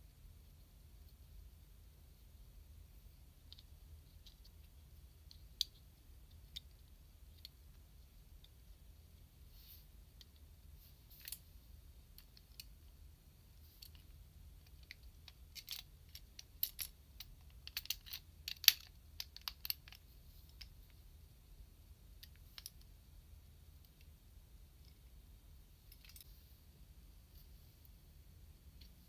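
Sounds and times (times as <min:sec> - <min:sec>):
plastic toy parts clicking: 0:14.7 - 0:20.7.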